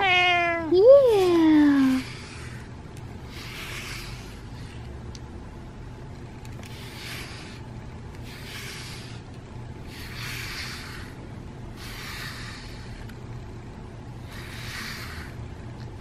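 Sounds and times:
brush raking through fur: 1.1 - 4.8, 6.6 - 9.2, 9.9 - 11.2, 14.2 - 15.4.

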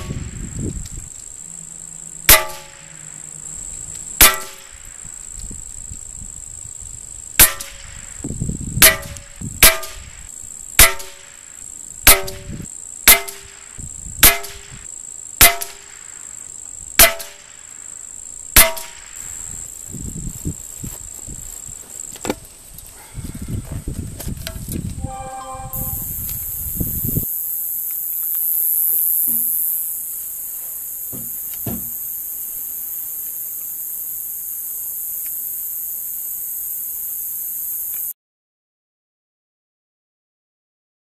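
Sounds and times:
bullet striking ringing metal tin: 2.3 - 2.9.

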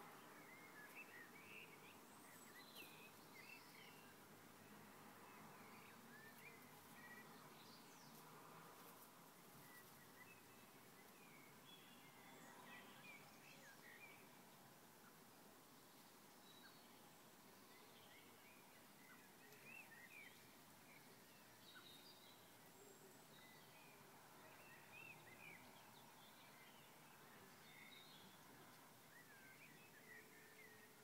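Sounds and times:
outdoor background hiss: 0.0 - 31.0
birds chirping: 5.2 - 8.2, 9.3 - 31.0.

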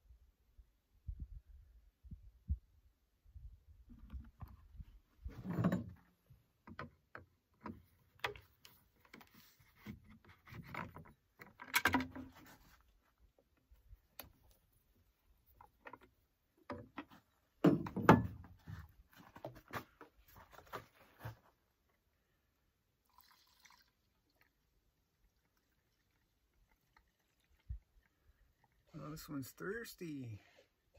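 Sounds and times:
plastic jugs knocking and rattling: 16.6 - 21.4.

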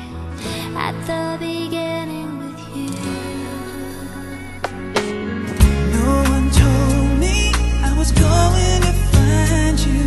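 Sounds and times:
background music with bass beat: 0.0 - 10.0.

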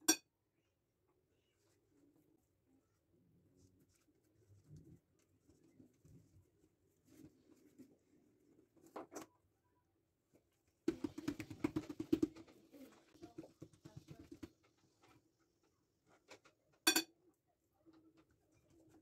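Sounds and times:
hands patting dough: 10.9 - 15.4.

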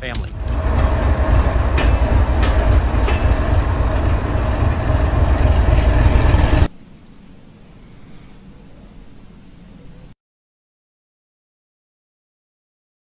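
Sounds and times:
diesel locomotive rumbling: 0.0 - 6.7.

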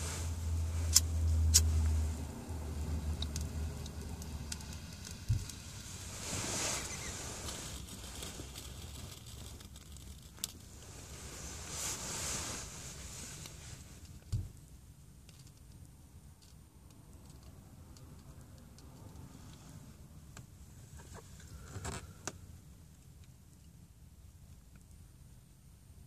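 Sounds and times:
airy hiss of drawing on pipe: 5.7 - 7.9, 10.9 - 14.0.

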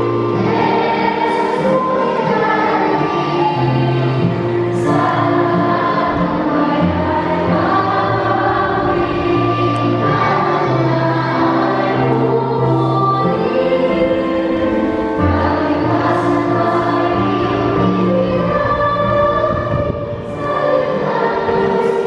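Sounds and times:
congregation singing a worship song: 0.0 - 22.0
instrumental accompaniment: 0.0 - 22.0.

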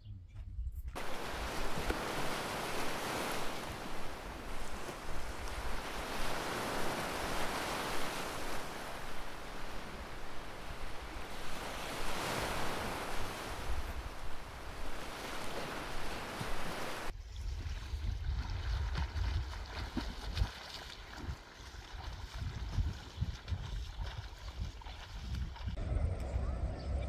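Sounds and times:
sea waves washing onto shore: 1.0 - 17.1.

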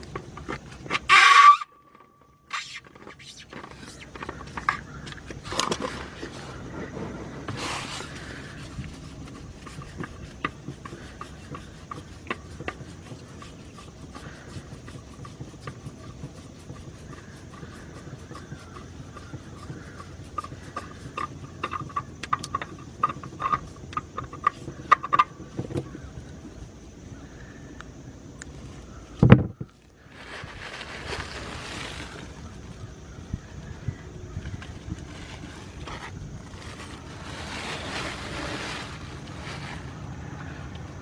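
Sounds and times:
oil filter scraping and clicking: 0.0 - 26.3, 34.4 - 40.0.

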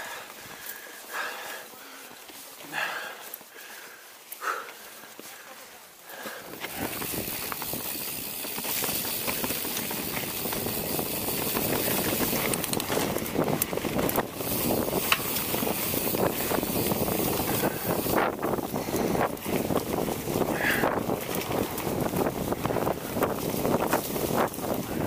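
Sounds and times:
bike tyres rolling on dirt: 0.0 - 25.0
wind rushing over microphone: 6.6 - 25.0.

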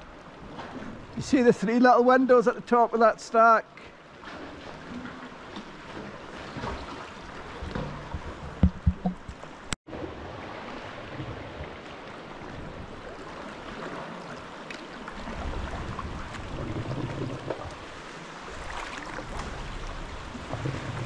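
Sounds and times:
water lapping and splashing: 0.0 - 21.0
low knocks: 7.6 - 9.5.

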